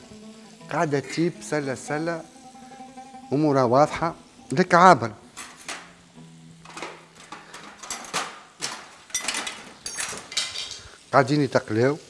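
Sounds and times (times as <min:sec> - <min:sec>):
metal utensil clinking on pan: 0:06.6 - 0:10.9.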